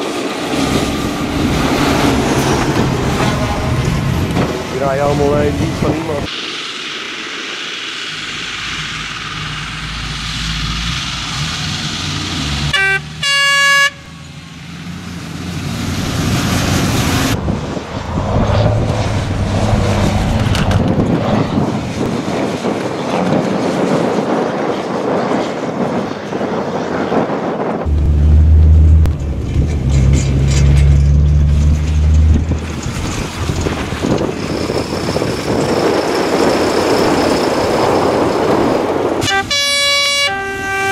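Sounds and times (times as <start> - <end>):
diesel truck engines revving: 0.4 - 6.8, 7.6 - 22.2, 27.9 - 40.9
truck horn blast: 12.7 - 14.2, 39.2 - 40.9.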